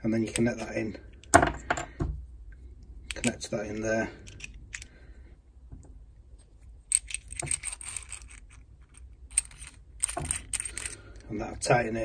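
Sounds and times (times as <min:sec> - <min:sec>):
metal fitting clinking and rattling: 0:03.1 - 0:05.0, 0:06.9 - 0:11.7.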